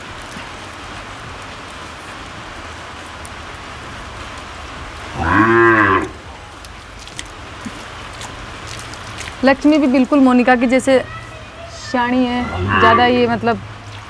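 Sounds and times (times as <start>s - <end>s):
cow mooing: 5.1s - 6.2s, 12.4s - 13.4s.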